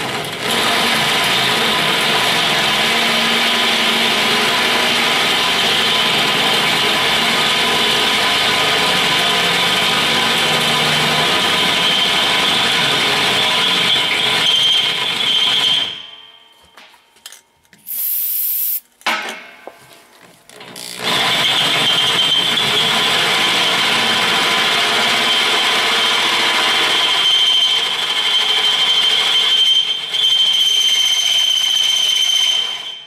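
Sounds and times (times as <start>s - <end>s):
drill press drilling steel: 17.8s - 18.8s
high squeal: 17.9s - 18.8s.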